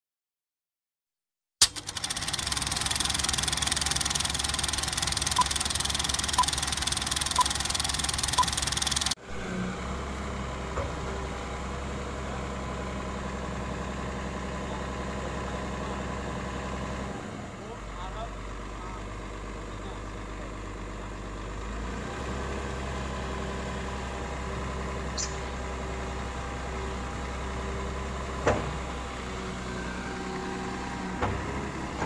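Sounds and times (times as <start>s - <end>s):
film projector clatter: 1.6s - 9.2s
diesel excavator idling: 1.6s - 32.0s
countdown beeps: 5.3s - 5.6s.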